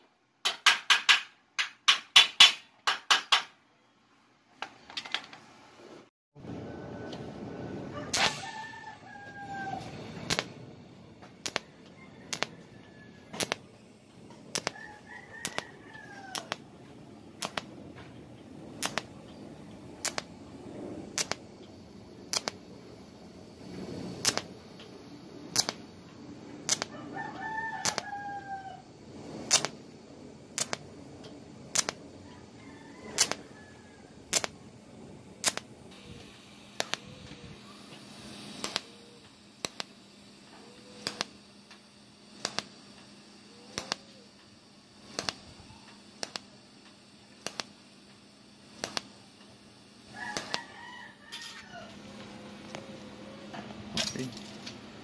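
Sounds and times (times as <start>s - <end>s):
tack welding clicks: 0.4s - 3.6s, 8.1s - 8.5s, 9.7s - 10.6s, 11.2s - 20.4s, 21.1s - 22.6s, 24.2s - 28.1s, 29.4s - 29.8s, 30.5s - 32.1s, 33.1s - 33.5s, 34.2s - 34.6s, 35.4s - 50.7s, 51.3s - 53.0s
faint hum: 3.6s - 55.0s
rooster crowing: 6.4s - 10.2s, 11.6s - 13.6s, 14.5s - 16.6s, 26.8s - 29.0s, 32.2s - 34.3s, 50.1s - 53.9s.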